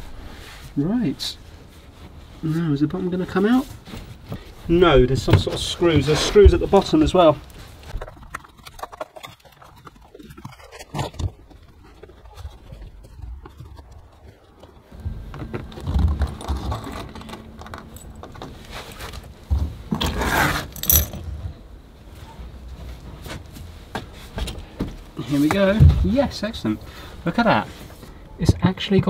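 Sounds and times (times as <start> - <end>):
scraping and rustling: 3.2 - 25.7
screwdriver and metal parts clinking: 19.9 - 21.3.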